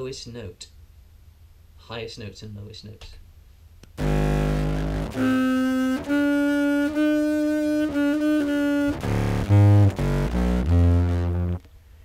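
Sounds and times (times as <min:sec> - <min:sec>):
fuzzed low clarinet notes: 0:04.0 - 0:11.6.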